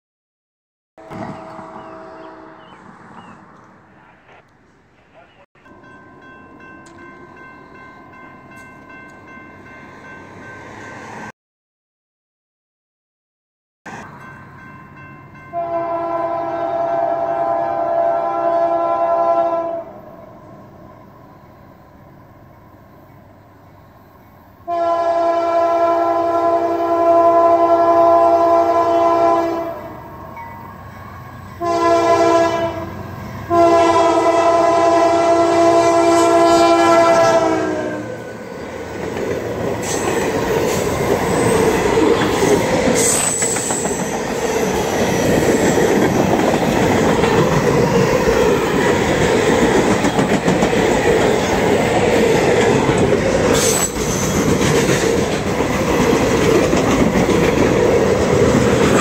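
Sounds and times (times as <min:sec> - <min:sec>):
locomotive air horn blasts: 0:01.0 - 0:02.8, 0:15.5 - 0:20.0, 0:24.7 - 0:29.9, 0:31.6 - 0:38.2
rail rumble: 0:01.0 - 0:11.3, 0:13.9 - 0:59.0
train wheel clatter: 0:39.0 - 0:59.0
wheel squeal: 0:42.4 - 0:45.8, 0:53.5 - 0:54.6.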